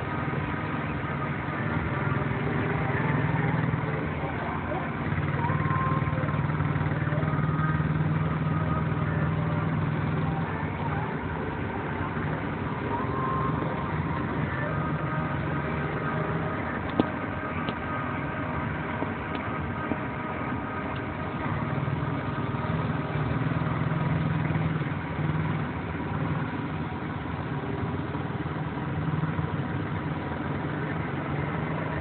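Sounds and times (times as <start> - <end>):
small quad engines droning: 0.0 - 32.0.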